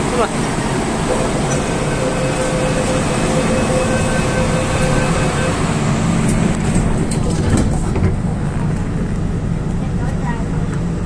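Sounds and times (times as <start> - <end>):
train rumbling at platform: 0.0 - 11.0
door-closing warning tone: 1.0 - 7.3.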